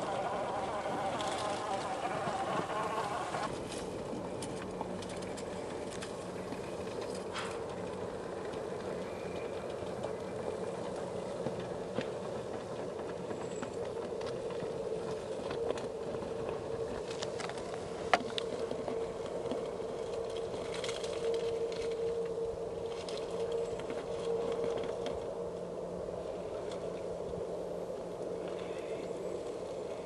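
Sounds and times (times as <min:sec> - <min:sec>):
electric motor and gears whining: 0:00.0 - 0:11.0.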